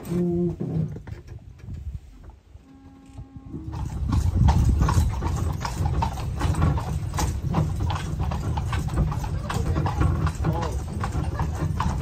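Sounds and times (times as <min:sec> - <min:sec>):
horse hooves on paved road: 0:03.1 - 0:12.0.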